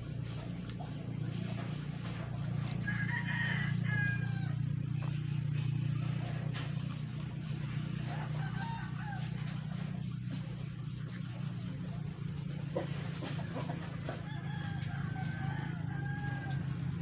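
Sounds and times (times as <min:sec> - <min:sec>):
steady low hum: 0:00.0 - 0:17.0
rooster crowing: 0:02.7 - 0:04.8, 0:07.8 - 0:10.2, 0:13.8 - 0:17.0.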